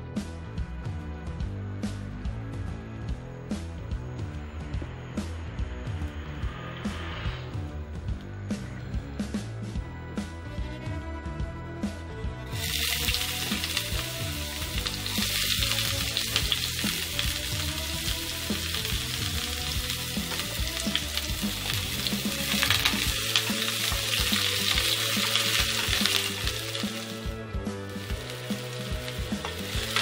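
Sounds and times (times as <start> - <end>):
background music: 0.0 - 30.0
food sizzling in oil: 12.5 - 30.0.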